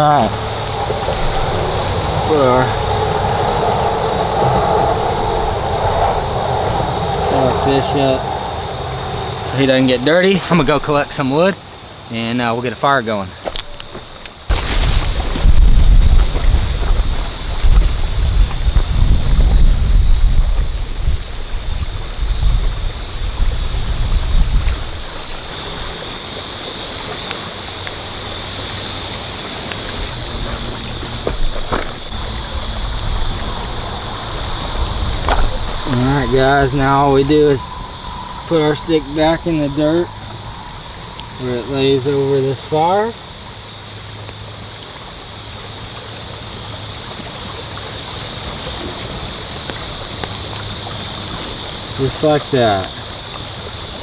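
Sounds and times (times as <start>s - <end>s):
wind on microphone: 0.0s - 11.2s, 14.5s - 26.0s, 29.0s - 42.9s
high hiss: 0.0s - 54.0s
shallow river flowing: 0.0s - 54.0s.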